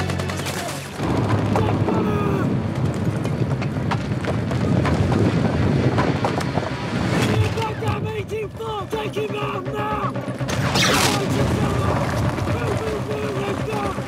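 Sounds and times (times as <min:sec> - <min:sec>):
low rumble: 0:01.0 - 0:14.0
people shouting: 0:01.5 - 0:02.6
gunfire: 0:10.5 - 0:13.0.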